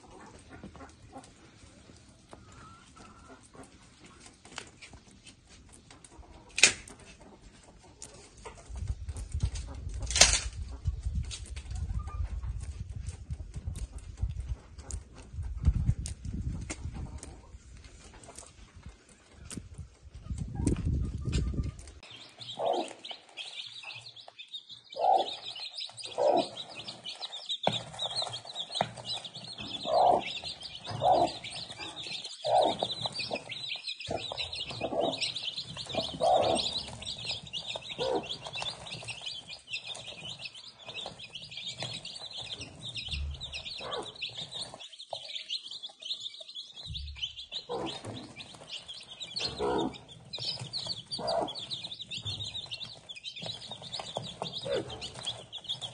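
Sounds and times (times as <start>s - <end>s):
hen clucking: 0.0s - 4.4s, 19.2s - 55.9s
chicks peeping: 0.0s - 55.9s.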